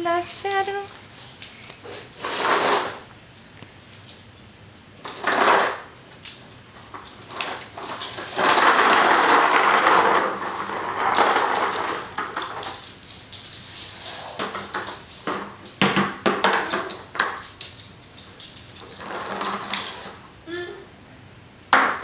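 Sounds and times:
toy wagon wheels rolling and rattling: 6.9s - 15.4s, 16.4s - 20.2s.

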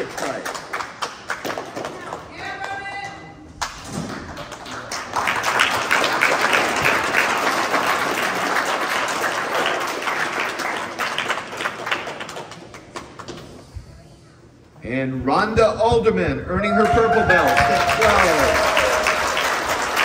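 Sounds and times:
audience applauding: 4.3s - 13.2s, 16.8s - 20.0s.

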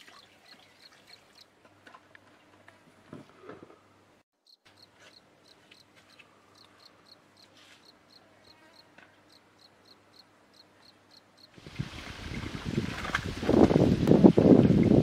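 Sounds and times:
faint cricket chirping: 4.4s - 11.6s.

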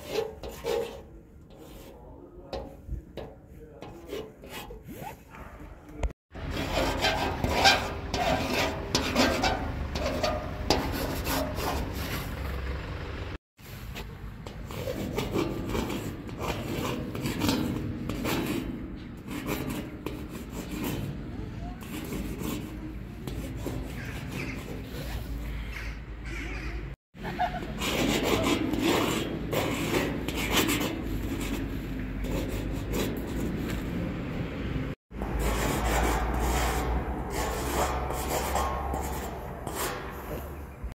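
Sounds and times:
pen tip scratching a painted wall: 0.0s - 2.7s, 14.7s - 25.4s
rubbing and scratching: 0.0s - 12.5s, 13.7s - 34.1s, 35.0s - 40.9s
sharp scrapes: 0.0s - 12.5s, 13.6s - 34.1s, 35.1s - 40.9s.

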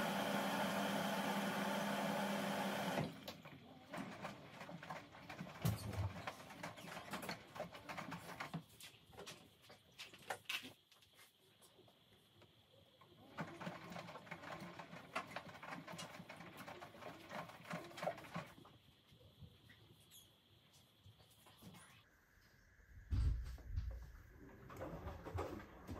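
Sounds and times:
washing machine motor humming: 0.0s - 8.5s.

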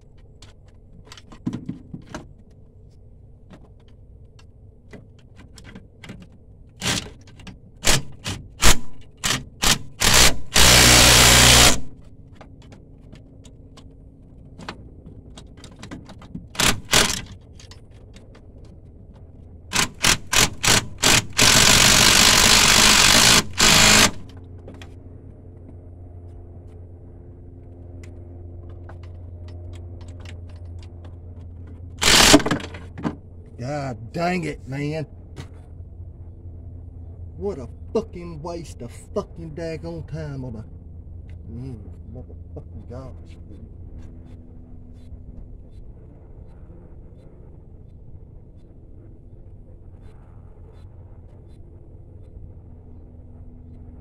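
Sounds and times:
steady low hum: 0.0s - 54.0s
power tool running in blips: 7.8s - 12.0s, 19.7s - 24.4s, 32.0s - 32.6s.

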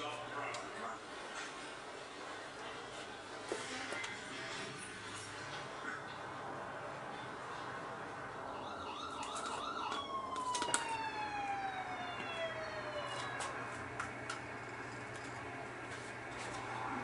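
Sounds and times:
siren yelp and wail: 8.5s - 13.7s.

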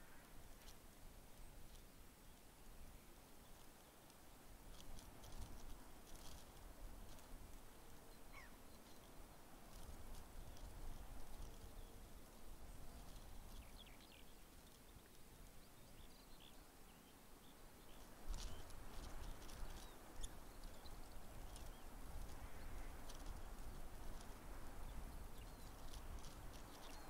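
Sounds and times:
small birds chirping: 1.4s - 27.0s.

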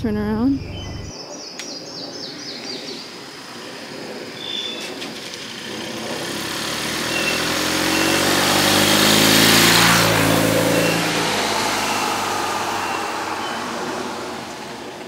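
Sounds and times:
vehicle engine: 0.0s - 1.1s, 2.3s - 15.0s
short bird chirps: 0.6s - 3.0s.

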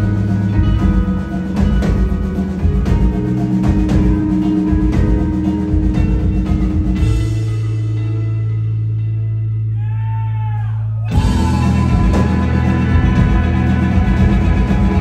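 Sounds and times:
rock band playing live: 0.0s - 9.8s, 11.0s - 15.0s
guitar tones bending downward: 11.0s - 15.0s.

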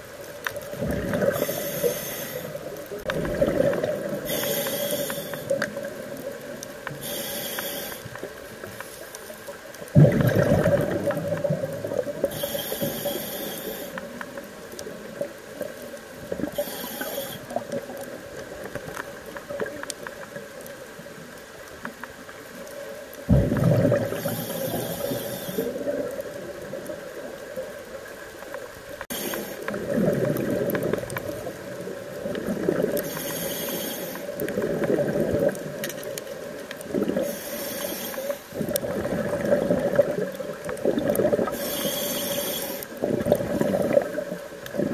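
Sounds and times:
exhaled bubbles rushing: 0.7s - 1.6s, 3.0s - 4.3s, 9.9s - 12.3s, 23.3s - 24.8s, 29.7s - 33.0s, 34.5s - 35.8s, 38.6s - 41.6s, 43.0s - 44.9s
regulator hissing inhale: 1.2s - 2.9s, 4.2s - 5.8s, 6.8s - 9.5s, 12.2s - 14.3s, 16.4s - 17.7s, 24.1s - 25.9s, 29.0s - 29.8s, 33.0s - 34.4s, 37.1s - 38.6s, 41.4s - 43.0s.

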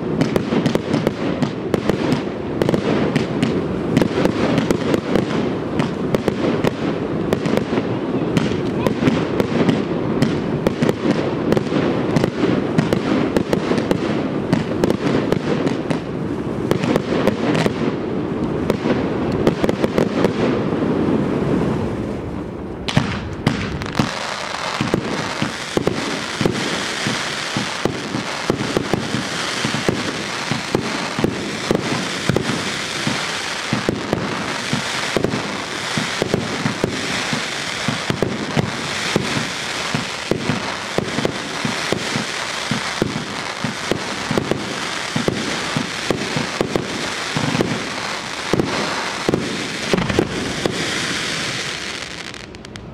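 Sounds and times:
fireworks crackling and hissing: 0.0s - 52.9s
fireworks deep bangs: 0.0s - 52.9s
sharp pops: 48.5s - 50.8s.

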